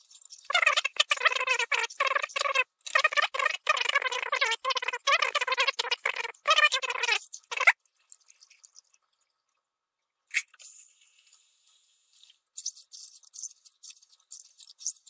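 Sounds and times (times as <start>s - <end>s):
running water: 0.0s - 9.6s
small splashes and metal clinks: 7.8s - 9.7s.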